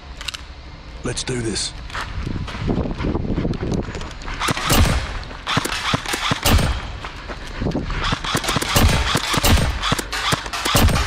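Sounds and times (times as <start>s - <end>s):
airsoft gun rapid fire: 4.4s - 7.0s, 8.0s - 11.0s.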